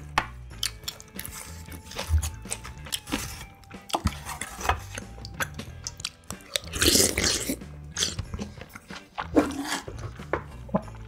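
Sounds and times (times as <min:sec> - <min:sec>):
wet chewing with mouth clicks: 0:00.6 - 0:11.0
slurp of broth: 0:09.2 - 0:09.9.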